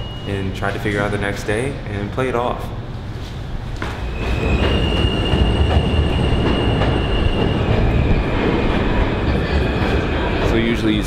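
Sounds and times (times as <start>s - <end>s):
high wheel squeal: 0.0s - 1.3s, 4.0s - 11.0s
subway train rumbling: 0.0s - 11.0s.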